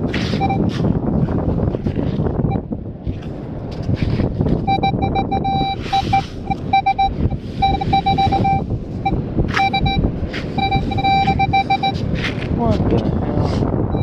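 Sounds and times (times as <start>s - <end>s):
wind buffeting microphone: 0.0s - 14.0s
metal detector beeps: 0.3s - 0.7s, 4.6s - 12.0s.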